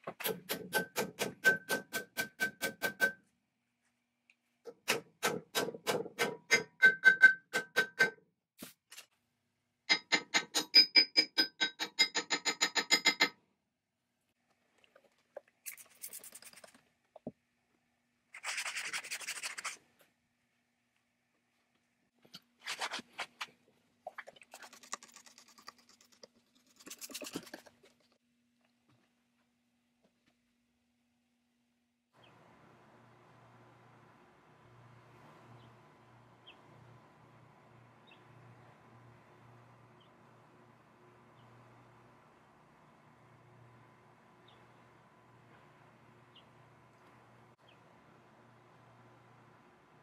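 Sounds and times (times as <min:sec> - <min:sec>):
hammer striking steel: 0:00.2 - 0:03.2
scratchy rubbing noises: 0:18.4 - 0:19.8.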